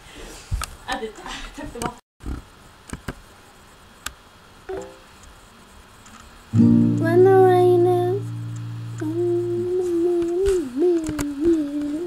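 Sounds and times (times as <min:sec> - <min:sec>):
acoustic guitar chord strummed: 0:06.5 - 0:09.9
person humming: 0:06.9 - 0:12.0.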